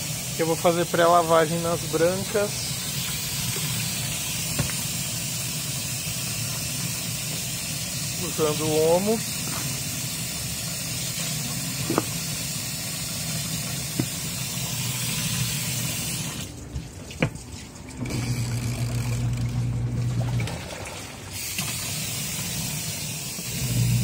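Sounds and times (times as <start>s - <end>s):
tap water running into tub: 0.0s - 24.0s
low machine hum: 12.9s - 21.4s, 23.5s - 24.0s.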